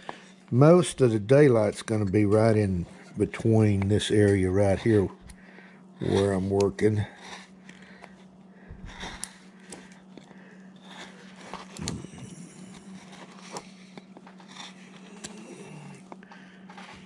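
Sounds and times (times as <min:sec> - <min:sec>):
steady low hum: 0:00.0 - 0:17.0
carving gouge scraping wood: 0:06.0 - 0:07.4.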